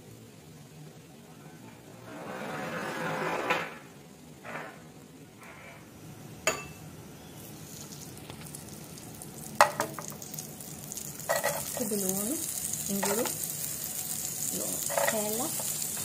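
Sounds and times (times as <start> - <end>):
butter sizzling in frying pan: 6.5 - 16.0
utensil clinking against pan: 14.8 - 15.3.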